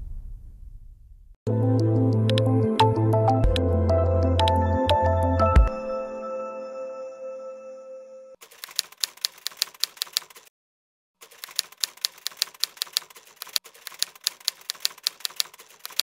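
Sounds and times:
typewriter key clacks: 0:08.4 - 0:10.5, 0:11.2 - 0:16.0.

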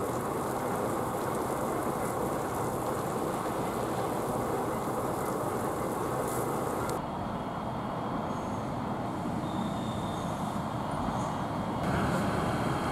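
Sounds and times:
fire hose jet hissing: 0:00.0 - 0:07.0
fire engines rumbling: 0:00.0 - 0:07.8.

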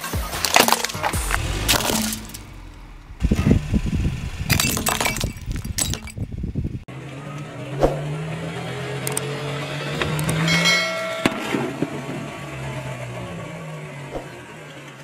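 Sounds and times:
car tyre crushing bottles: 0:00.0 - 0:03.2, 0:04.4 - 0:06.5.

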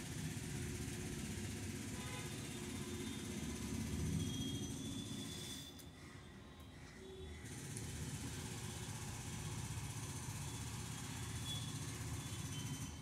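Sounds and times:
low engine or traffic rumble: 0:07.3 - 0:13.0.

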